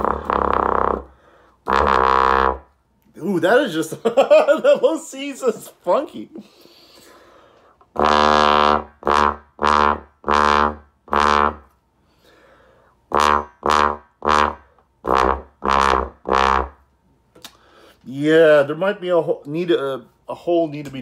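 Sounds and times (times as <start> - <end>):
muted bass trombone notes: 0.0 - 2.7, 8.0 - 11.7, 13.1 - 16.8
person talking: 3.1 - 6.5, 18.0 - 21.0.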